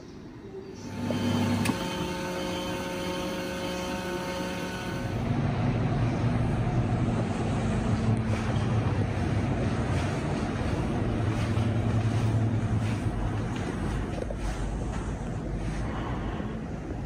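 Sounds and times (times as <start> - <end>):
coffee machine humming: 0.8 - 15.4
low rumbling noise: 4.7 - 17.0.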